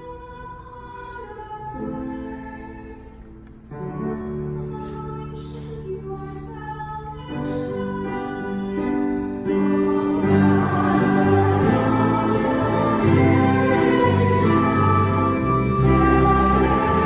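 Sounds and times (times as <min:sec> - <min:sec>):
instrumental accompaniment: 0:09.0 - 0:17.0.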